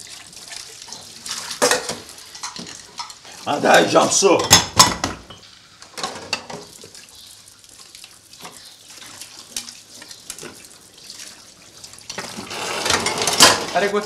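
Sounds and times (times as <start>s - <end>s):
dishes clinking: 1.6s - 3.2s, 4.4s - 6.7s, 12.1s - 13.8s.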